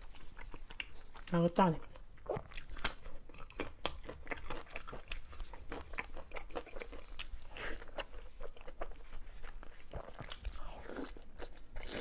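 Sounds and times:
chewing and mouth smacks: 0.0s - 12.0s.

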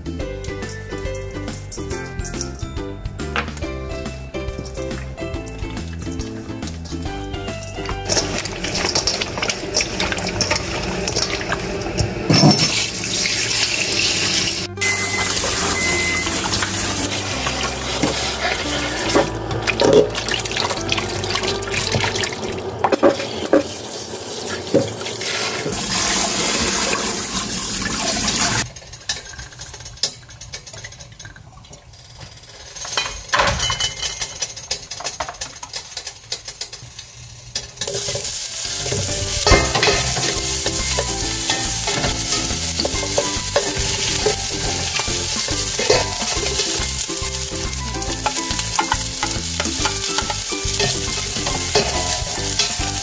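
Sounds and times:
meat rubbed and rinsed in bowl: 4.0s - 31.1s, 37.9s - 53.0s
water rushing into sink: 5.8s - 28.7s.

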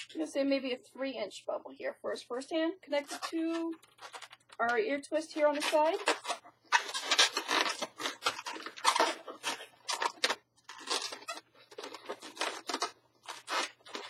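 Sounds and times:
balloons rubbing and scraping: 0.0s - 0.3s, 2.9s - 4.7s, 5.3s - 14.0s.

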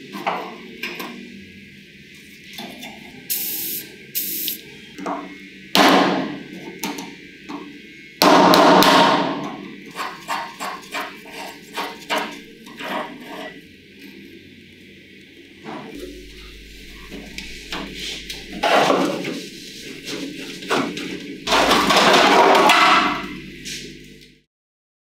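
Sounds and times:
noisy strokes: 15.7s - 24.0s.

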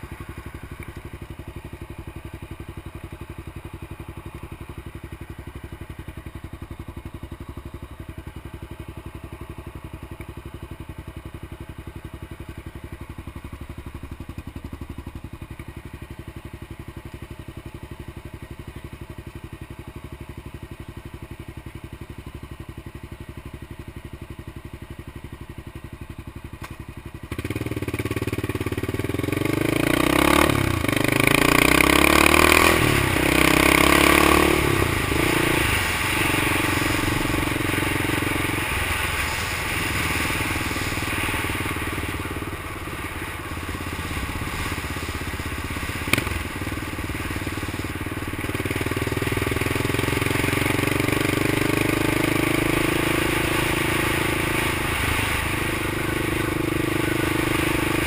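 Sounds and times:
motorcycle engine idling and revving: 0.0s - 58.0s.

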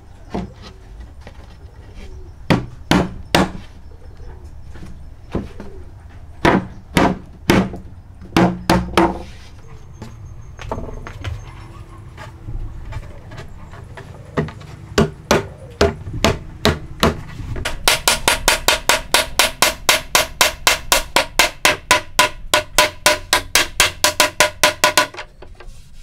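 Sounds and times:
knocks on wooden boards: 2.5s - 3.6s, 6.4s - 9.2s, 14.3s - 25.6s.

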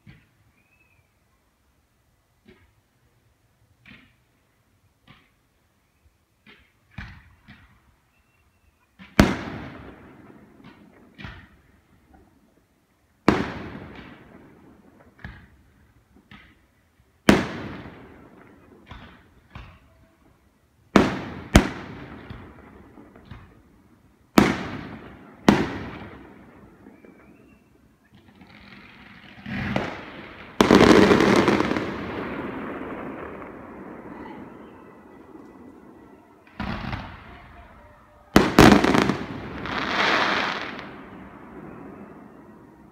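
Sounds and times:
small firework pops: 2.4s - 2.8s, 3.8s - 4.3s, 5.0s - 5.4s, 6.4s - 7.8s, 10.6s - 12.3s, 15.0s - 16.7s, 18.4s - 19.9s, 23.1s - 23.6s.

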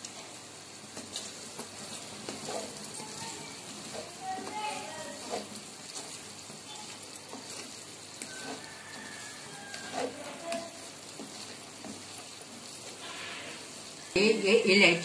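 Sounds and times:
spatula scraping a pan: 0.0s - 14.1s
meat sizzling in oil: 0.0s - 15.0s.

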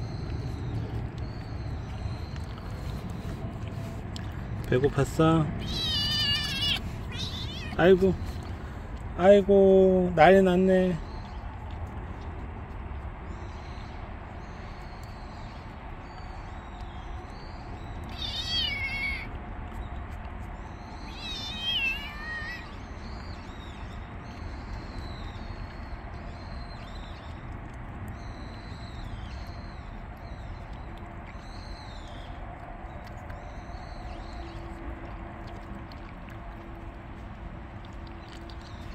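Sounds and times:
kittens mewing: 5.6s - 7.8s, 18.1s - 19.3s, 21.1s - 22.8s.

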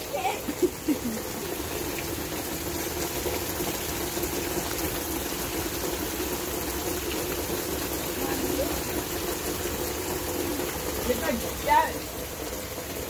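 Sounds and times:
heavy rain pouring: 0.0s - 13.0s.

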